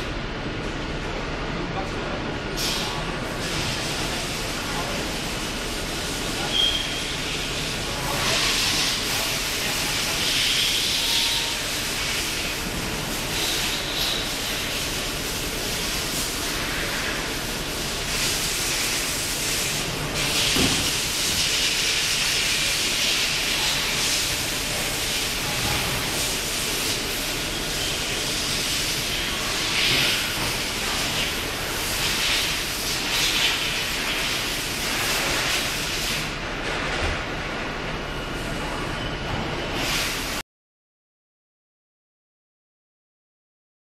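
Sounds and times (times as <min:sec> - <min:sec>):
machine hissing: 0:02.6 - 0:36.3.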